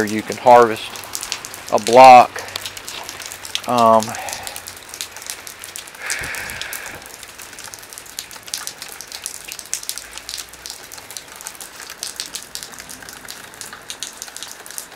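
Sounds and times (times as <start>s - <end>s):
rain drops ticking: 0.0s - 14.9s.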